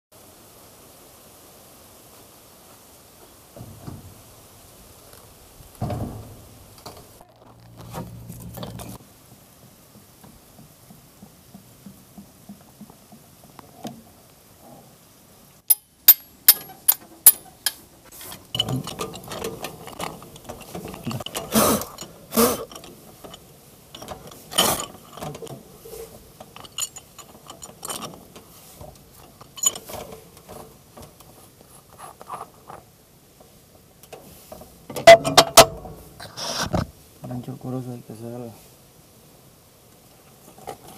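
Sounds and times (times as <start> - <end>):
pipe wrench clanking on metal: 15.7 - 31.2, 34.9 - 35.9.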